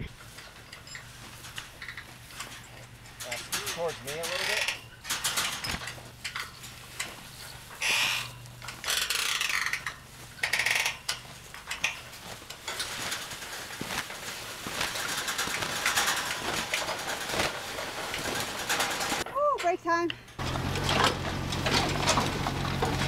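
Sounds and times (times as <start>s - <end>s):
metal clinks and rattles: 0.0s - 23.0s
metal frame scraping over dirt: 0.0s - 23.0s.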